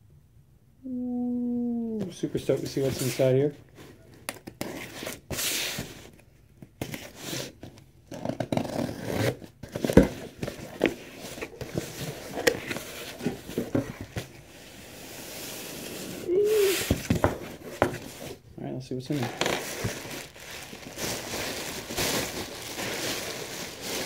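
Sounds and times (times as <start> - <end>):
packing tape being slit and ripped: 6.9 - 10.0, 19.3 - 24.0
plastic packaging rustling: 9.6 - 14.6, 19.1 - 24.0
cardboard flaps scraping and tapping: 16.8 - 18.2.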